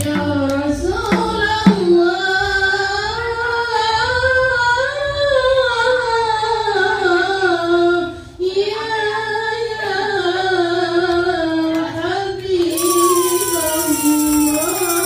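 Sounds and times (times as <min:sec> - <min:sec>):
high voice singing unaccompanied: 0:08.5 - 0:15.0.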